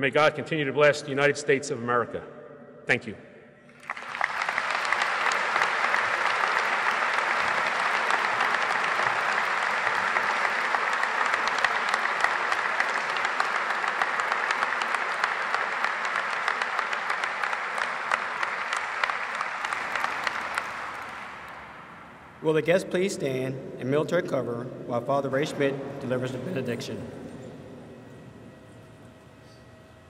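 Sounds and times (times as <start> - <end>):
audience applauding: 3.7 - 22.4.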